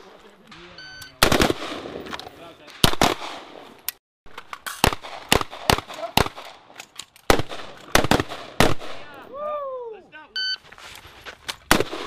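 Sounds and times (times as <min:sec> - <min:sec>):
pistol shots with echo: 0:01.2 - 0:02.1, 0:04.8 - 0:06.6, 0:07.3 - 0:09.0.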